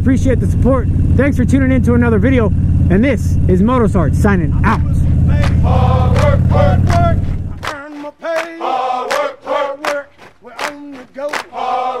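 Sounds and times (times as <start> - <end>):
motorcycle engine rumbling: 0.0 - 7.9
music with chanted male vocals: 5.1 - 12.0.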